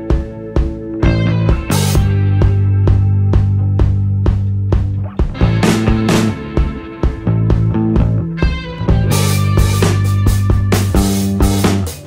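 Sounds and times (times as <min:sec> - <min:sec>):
rock music: 0:00.0 - 0:12.0
steady drum beat: 0:00.0 - 0:12.0
sustained bass notes: 0:00.0 - 0:12.0.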